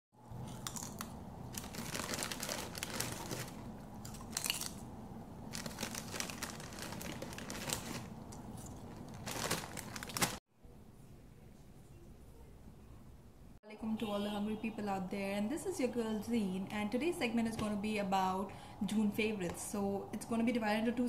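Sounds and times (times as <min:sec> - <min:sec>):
food crunching being chewed: 0:00.4 - 0:01.9, 0:02.9 - 0:04.8
crinkly sounds: 0:00.4 - 0:04.8, 0:05.5 - 0:10.4.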